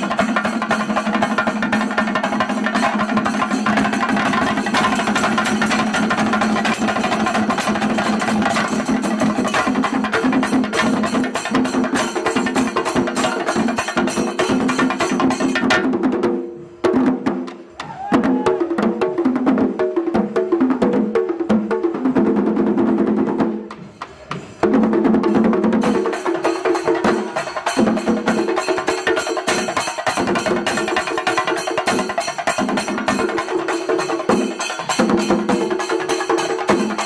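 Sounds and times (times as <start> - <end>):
drums beaten rapidly with sticks: 0.0 - 37.0
brass cymbals: 25.8 - 37.0.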